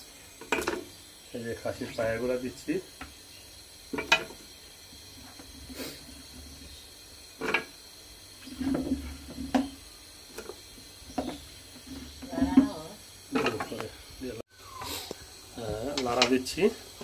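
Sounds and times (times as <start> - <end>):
trotters clunking into a metal pot: 0.4 - 1.0, 3.9 - 6.8, 7.4 - 7.8, 8.4 - 13.9.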